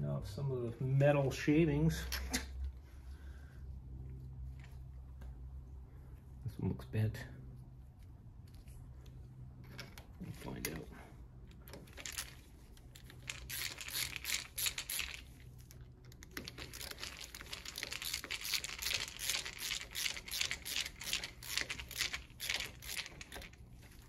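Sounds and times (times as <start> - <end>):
steady low hum: 0.0 - 24.0
small metal clicks and rattles: 11.4 - 24.0.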